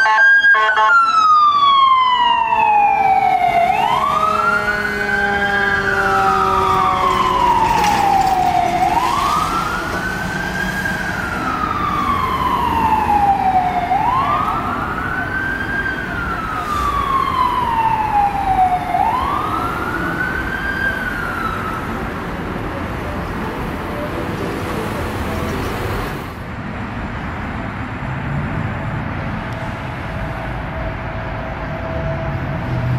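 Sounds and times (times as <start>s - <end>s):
fire engine siren wailing: 0.0s - 26.0s
traffic noise: 0.0s - 32.9s.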